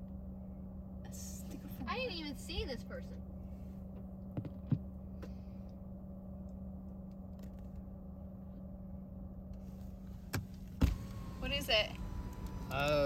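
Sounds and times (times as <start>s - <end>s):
car engine hum from inside cabin: 0.0s - 13.0s
knock against windshield: 4.3s - 4.9s.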